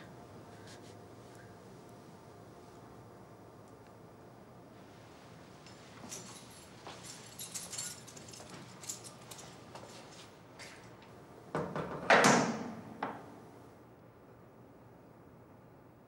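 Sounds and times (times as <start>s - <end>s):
small metal clicks and rattles: 5.6s - 9.6s
metal door clunking shut: 11.6s - 13.2s.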